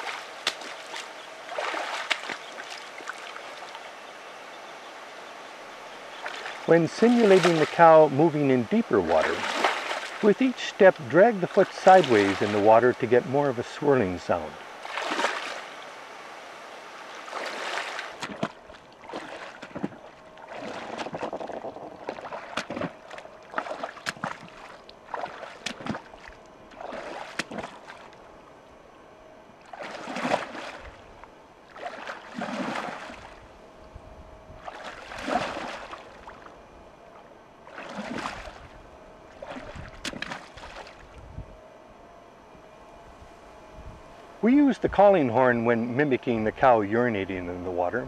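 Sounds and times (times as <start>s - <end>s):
footsteps sloshing in water: 0.0s - 4.0s, 6.0s - 16.0s, 17.0s - 28.4s, 29.5s - 33.6s, 34.5s - 41.3s.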